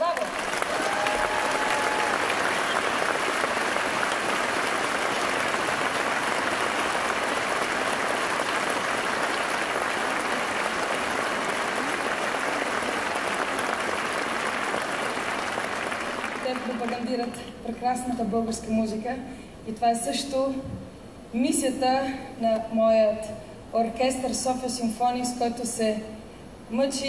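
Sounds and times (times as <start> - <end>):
audience applauding: 0.0 - 17.1.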